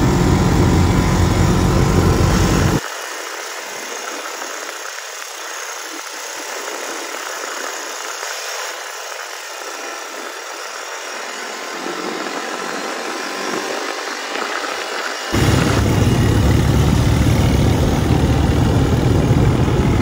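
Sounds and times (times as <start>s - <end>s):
quad bike engine running: 0.0s - 20.0s.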